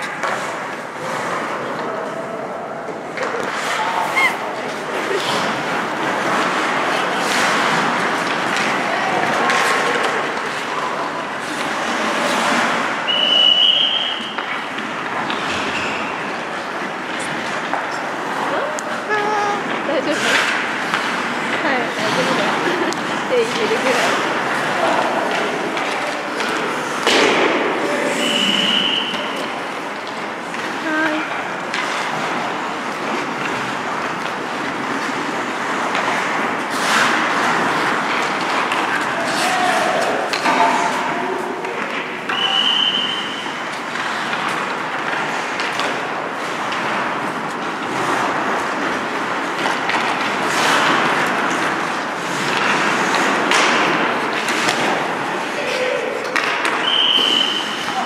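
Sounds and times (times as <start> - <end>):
ice rink ambience: 0.0 - 58.0
whistle blown: 13.1 - 14.4, 28.2 - 29.3, 42.3 - 43.5, 56.8 - 58.0.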